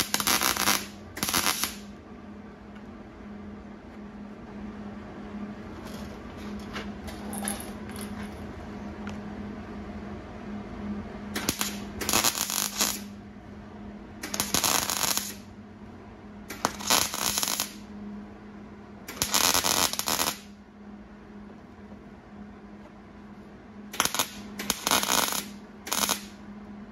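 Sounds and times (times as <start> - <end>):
welder crackling: 0.0 - 1.9, 11.4 - 13.1, 14.2 - 15.5, 16.5 - 17.8, 19.1 - 20.5, 23.9 - 26.4
steady low hum: 0.0 - 26.9.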